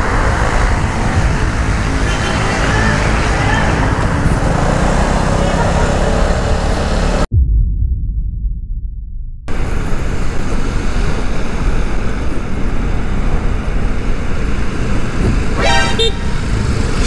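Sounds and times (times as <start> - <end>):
scooter road noise: 0.0 - 7.3, 9.6 - 17.0
horn honk: 2.0 - 3.0, 15.6 - 16.5.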